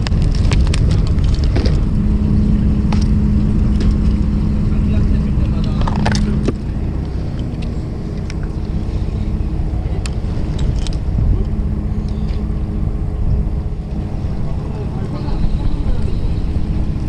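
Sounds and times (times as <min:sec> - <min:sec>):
boat engine rumbling: 0:00.0 - 0:17.0.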